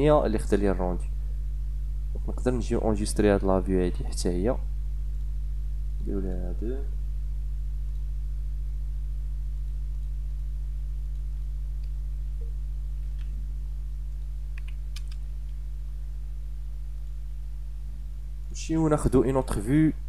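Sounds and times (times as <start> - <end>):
electrical mains hum: 0.0 - 20.0
keyboard and mouse clicks: 13.0 - 13.4, 14.5 - 15.6.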